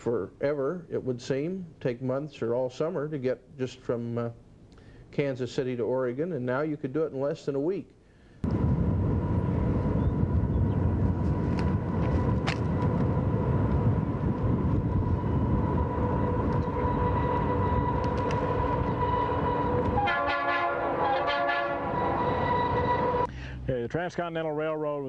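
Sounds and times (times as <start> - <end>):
diesel locomotive engines rumbling: 8.5 - 23.9
steady high tone: 13.4 - 23.3
locomotive horn: 15.0 - 23.3.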